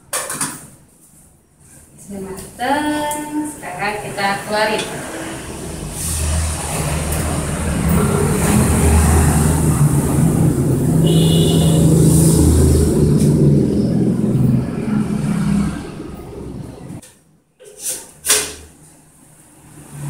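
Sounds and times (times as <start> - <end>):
loud low engine-like drone: 3.7 - 17.0.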